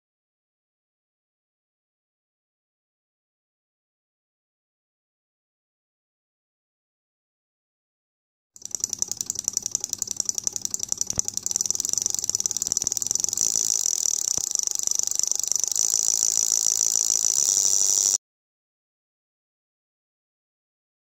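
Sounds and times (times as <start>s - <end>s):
relay clicking rapidly: 8.6s - 18.2s.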